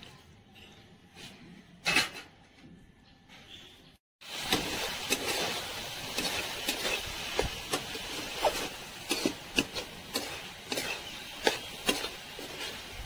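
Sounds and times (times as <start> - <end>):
pan sizzling: 4.2 - 13.0
metal spatula scraping metal pan: 4.5 - 13.0.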